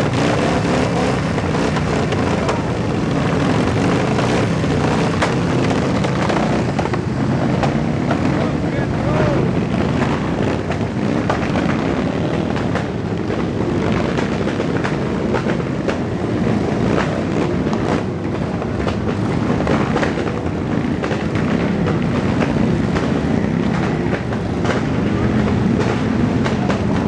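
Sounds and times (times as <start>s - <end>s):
sharp cracks: 0.0s - 8.5s
many motorcycle engines running: 0.0s - 27.0s.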